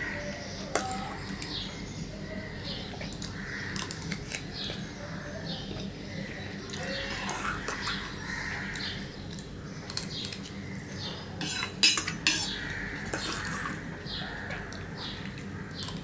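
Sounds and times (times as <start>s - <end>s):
metal spoon scraping a bowl: 6.8s - 8.2s, 11.4s - 13.8s.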